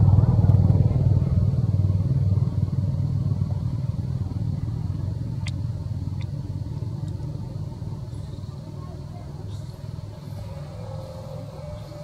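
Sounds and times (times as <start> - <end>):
vehicle engine humming: 0.0 - 12.0.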